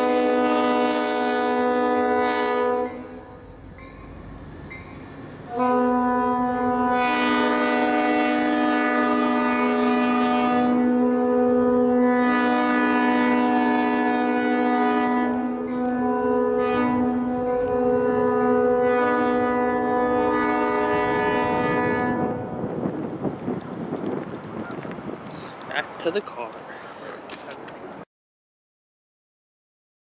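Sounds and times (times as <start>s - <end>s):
locomotive air horn: 0.0s - 3.5s, 5.5s - 22.6s.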